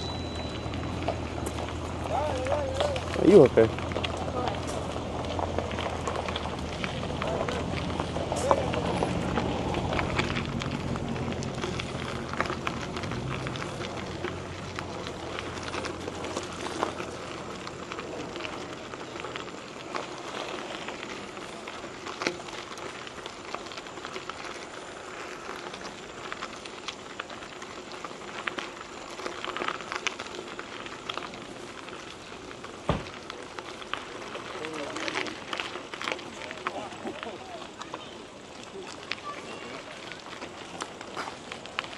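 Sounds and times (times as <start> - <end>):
low rumble: 0.0 - 19.5
bike tyres crunching on gravel: 0.0 - 41.9.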